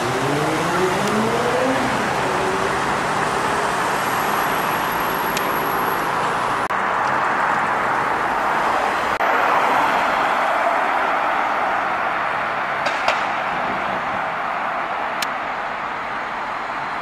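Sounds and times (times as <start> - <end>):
car engine driving off: 0.0 - 5.6
street traffic noise: 0.0 - 17.0.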